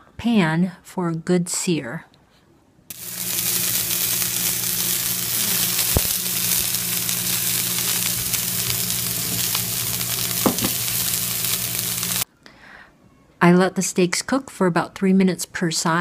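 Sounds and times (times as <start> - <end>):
low hum: 2.9 - 12.2
steaks sizzling in a hot pan: 2.9 - 12.2.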